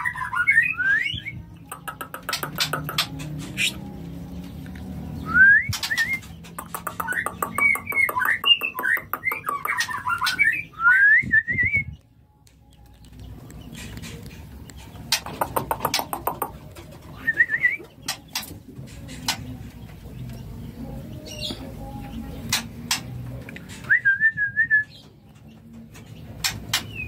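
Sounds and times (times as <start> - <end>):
bird whistling song: 0.0 - 3.9, 5.2 - 12.1, 17.1 - 18.5, 23.6 - 25.2
bird clicking ticks: 1.8 - 3.4, 6.6 - 9.7.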